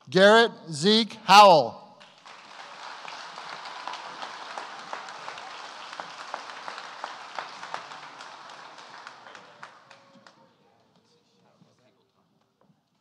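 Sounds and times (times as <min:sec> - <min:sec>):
audience applause: 0:02.0 - 0:10.4.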